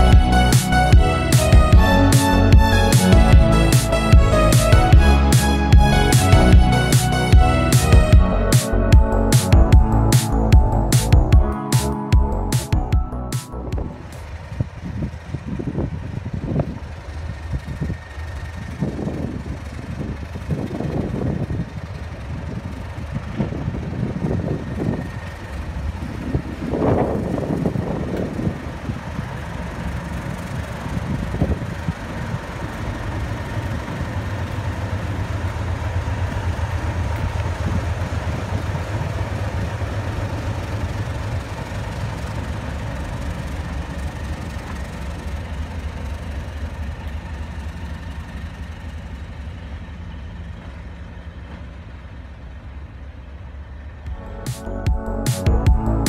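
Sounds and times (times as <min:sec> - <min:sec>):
low rumbles: 0:00.0 - 0:16.6
diesel locomotive engine hum: 0:00.0 - 0:56.0.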